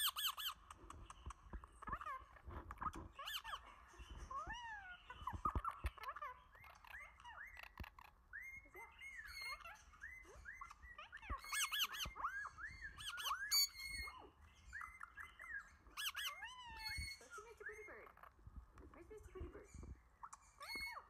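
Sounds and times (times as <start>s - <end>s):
parrot chirping and whistling: 0.0s - 0.6s, 4.3s - 18.2s, 20.2s - 21.0s.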